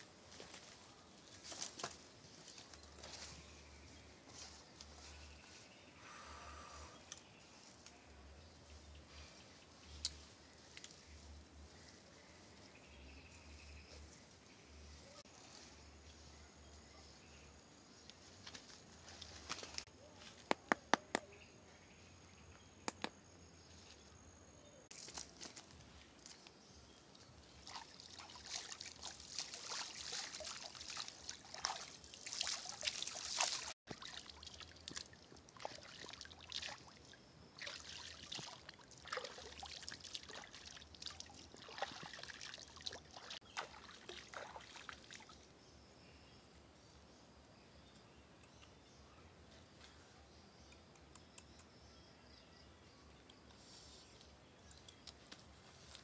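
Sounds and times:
shallow water splashing: 0:27.6 - 0:36.9, 0:37.6 - 0:45.2.

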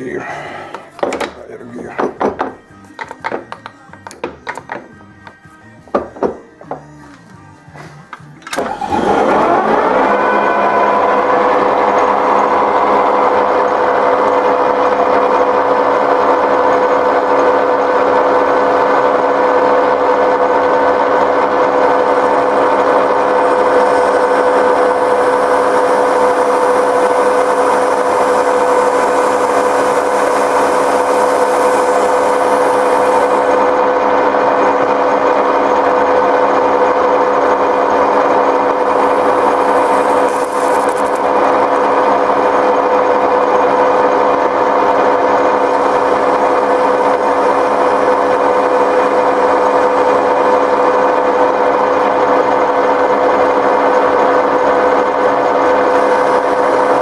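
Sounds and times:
metal lathe gear whine: 0:08.4 - 0:57.0
cutting tool hiss: 0:23.4 - 0:33.6, 0:38.8 - 0:41.9.

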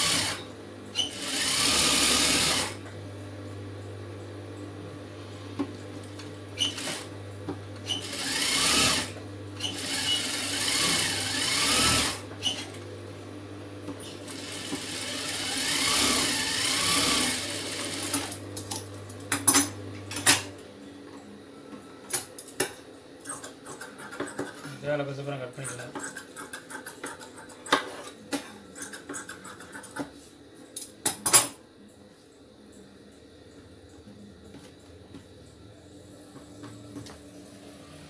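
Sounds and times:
sewing machine stitching: 0:01.0 - 0:02.8, 0:07.9 - 0:12.7, 0:14.3 - 0:18.3.

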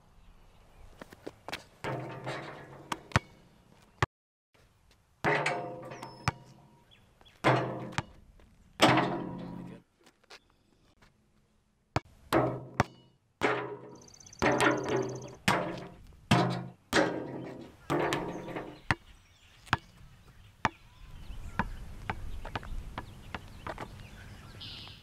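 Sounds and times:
basketball bouncing on asphalt: 0:01.0 - 0:04.1, 0:05.2 - 0:09.7, 0:12.0 - 0:25.0
basketball hitting backboard and rim: 0:01.8 - 0:03.4, 0:05.2 - 0:06.8, 0:07.4 - 0:08.2, 0:08.8 - 0:09.8, 0:12.0 - 0:19.0.

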